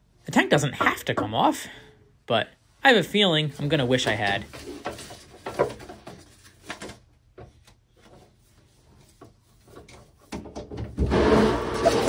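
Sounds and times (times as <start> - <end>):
objects knocking and rubbing: 4.0 - 12.0.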